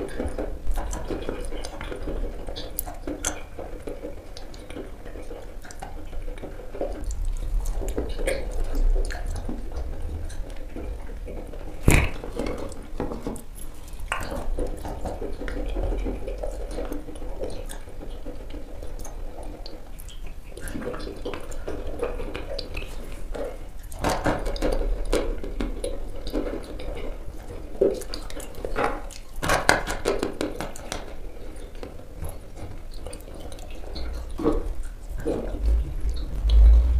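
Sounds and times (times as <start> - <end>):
wet sticky eating sounds: 0.0 - 25.2, 32.5 - 36.9.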